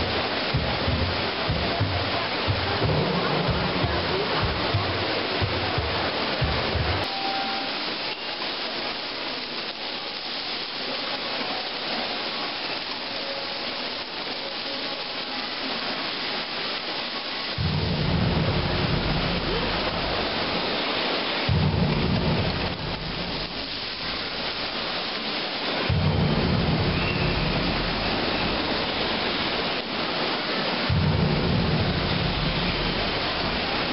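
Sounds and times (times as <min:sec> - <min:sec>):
fountain water splashing: 0:00.0 - 0:33.9
deep rumble: 0:17.6 - 0:20.5, 0:21.5 - 0:24.7, 0:25.9 - 0:29.6, 0:30.9 - 0:33.9.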